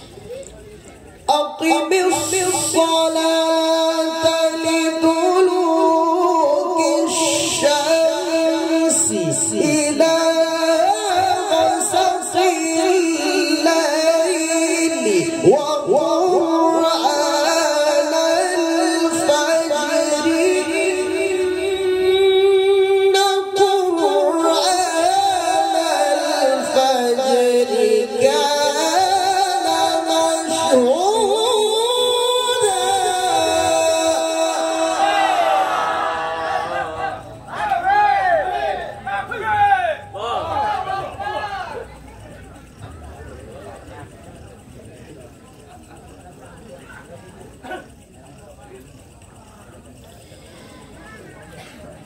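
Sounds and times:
man chanting recitation over loudspeaker: 0:01.2 - 0:37.4.

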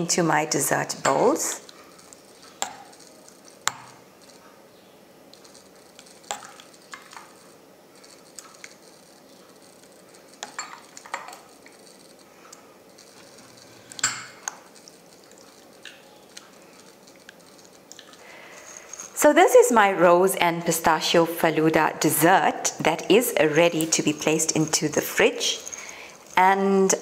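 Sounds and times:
ladle clinking and scraping: 0:05.4 - 0:12.3, 0:12.9 - 0:19.2, 0:23.0 - 0:27.0.

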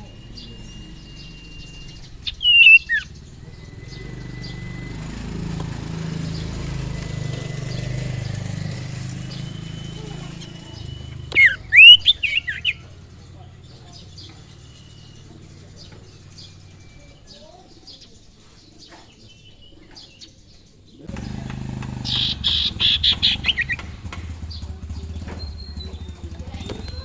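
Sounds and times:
quick rising and falling chirps: 0:00.0 - 0:17.1, 0:21.2 - 0:24.7
songbird whistled call: 0:00.0 - 0:18.2, 0:22.1 - 0:27.0.

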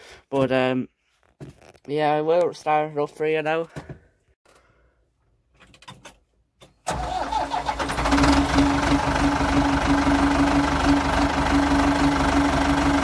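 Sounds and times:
diesel engine starting and running: 0:06.8 - 0:13.0.

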